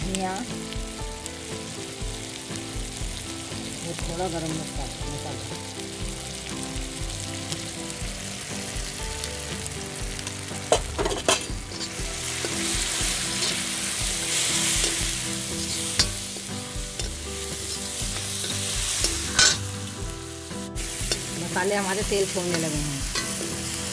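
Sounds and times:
masala sizzling in hot oil: 0.0s - 23.9s
ladle stirring and scraping pan: 10.6s - 23.9s
ladle knocking on pan: 10.7s - 19.7s, 20.8s - 21.4s.

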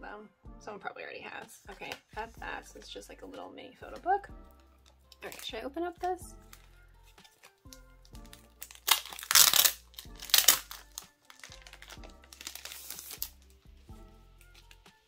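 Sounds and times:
soft background music: 0.0s - 15.0s
plastic wrapping crinkling: 4.6s - 5.6s, 6.4s - 13.7s, 14.3s - 15.0s.

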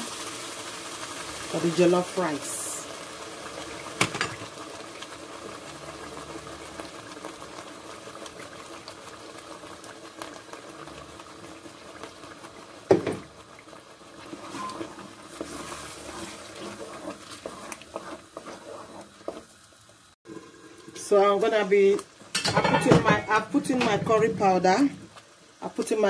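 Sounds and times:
onions sizzling in hot oil: 0.0s - 26.0s
wooden spoon stirring stew: 3.4s - 20.0s.

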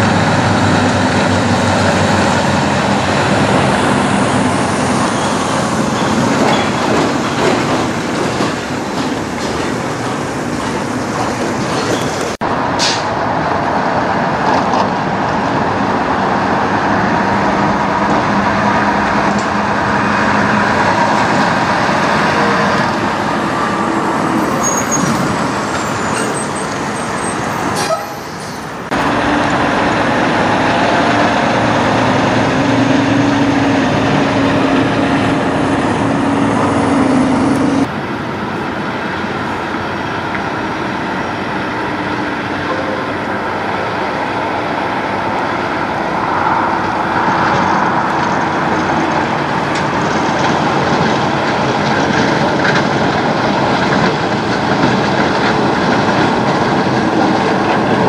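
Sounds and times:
truck diesel engines droning: 0.0s - 58.0s
tyre and road noise: 0.0s - 58.0s.

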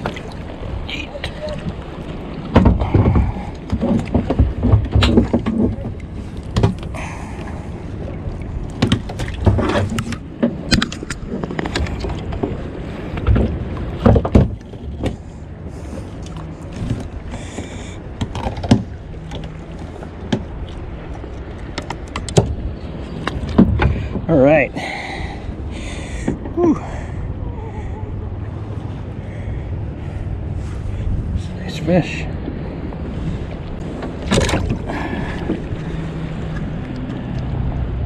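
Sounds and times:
wind noise: 0.0s - 19.0s, 22.0s - 38.0s
water noise: 0.0s - 38.0s
knocks against kayak hull: 2.5s - 7.0s, 8.8s - 10.9s, 13.2s - 15.2s.

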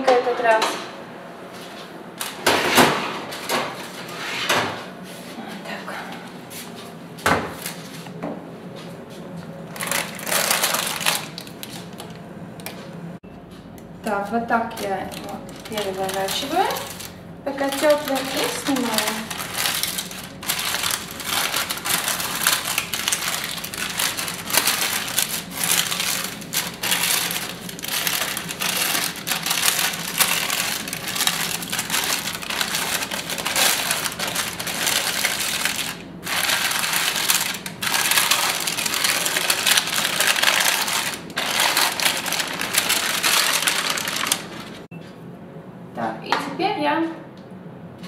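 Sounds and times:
baking parchment crinkling: 9.7s - 12.2s, 14.2s - 44.9s.

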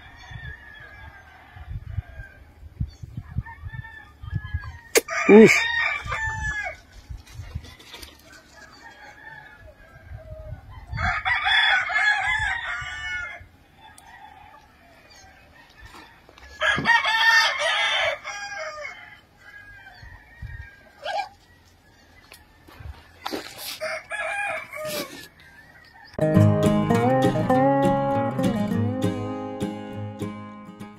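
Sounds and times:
roosters crowing: 0.0s - 23.1s, 23.7s - 30.2s.

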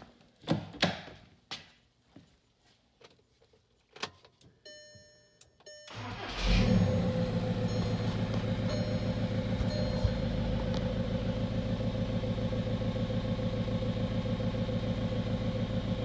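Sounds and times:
diesel engine cranking and idling: 5.9s - 16.0s
short electronic beeping: 6.8s - 10.3s.

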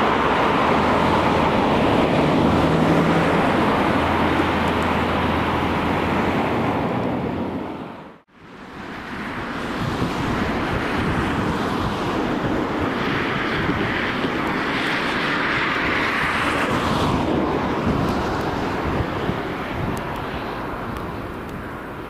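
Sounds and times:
freight train rumbling past: 0.0s - 22.0s
wind on the microphone: 8.8s - 22.0s.

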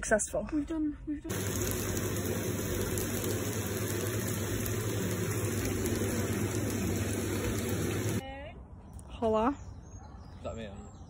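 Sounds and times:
food frying hiss: 1.3s - 8.2s
pasta boiling: 1.3s - 8.2s.

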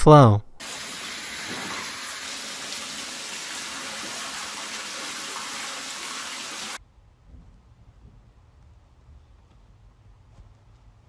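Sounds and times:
water gushing from toilet: 0.6s - 6.8s.

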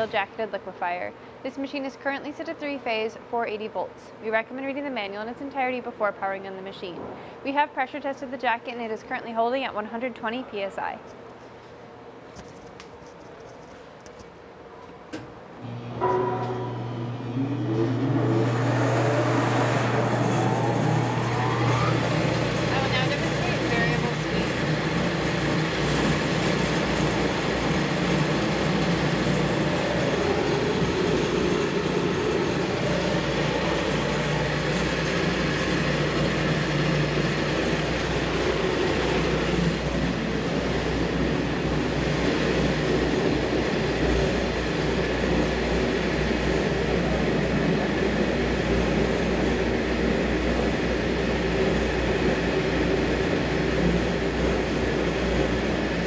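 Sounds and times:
machine motor rumbling: 15.6s - 56.0s.

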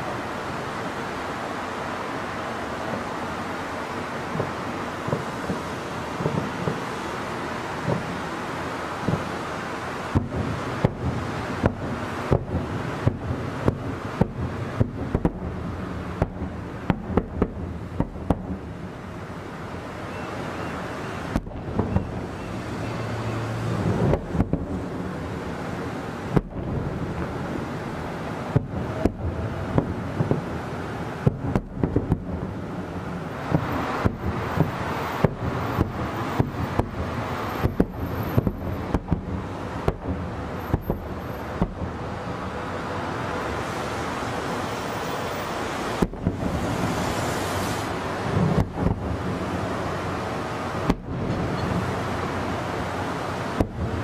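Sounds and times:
distant fireworks bursting: 0.0s - 54.0s
steady background noise: 0.0s - 54.0s.

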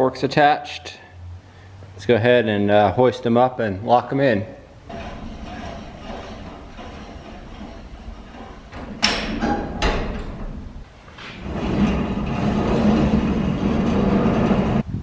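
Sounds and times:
metal clunks: 4.8s - 14.8s
trolley rolling rumble: 4.8s - 15.0s.

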